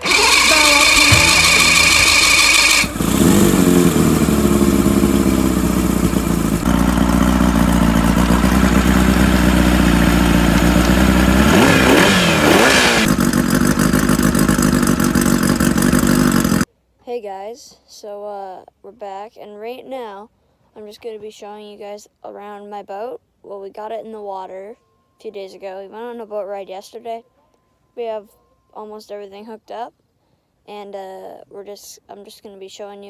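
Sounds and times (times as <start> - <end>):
outboard motor running: 0.0 - 16.6.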